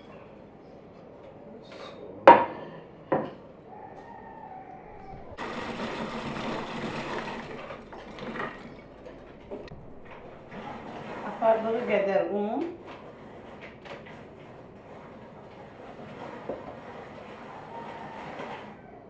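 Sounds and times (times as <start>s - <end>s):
rotary grater grinding nuts: 14.6s - 18.8s.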